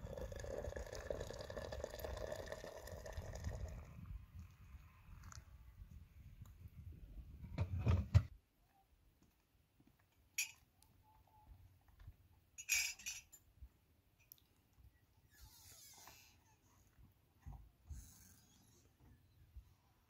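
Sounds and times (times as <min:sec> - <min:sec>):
dishes and utensils clinking: 0:12.6 - 0:13.4.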